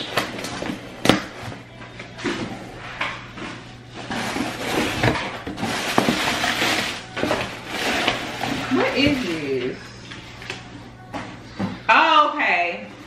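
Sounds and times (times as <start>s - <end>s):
cardboard flaps scraping and rustling: 4.0s - 9.4s.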